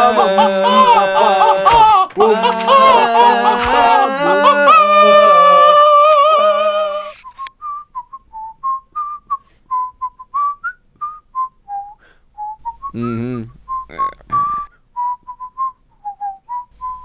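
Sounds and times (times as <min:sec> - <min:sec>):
person whistling a slow tune: 0:07.2 - 0:17.0.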